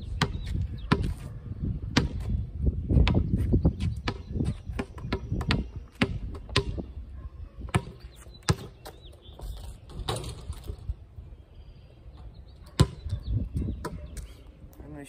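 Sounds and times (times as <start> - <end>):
basketball bouncing on concrete: 0.1 - 1.3, 1.9 - 7.0, 7.6 - 9.0, 12.7 - 13.2.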